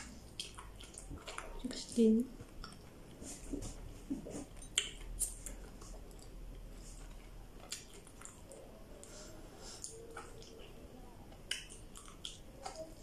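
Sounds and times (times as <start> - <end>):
crunching raw okra: 4.7 - 8.6.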